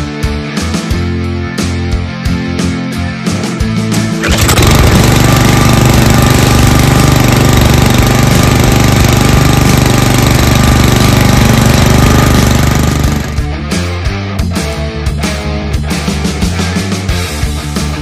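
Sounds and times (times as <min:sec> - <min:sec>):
petrol engine running: 0:04.2 - 0:13.5
recoil starter pull: 0:04.2 - 0:13.5.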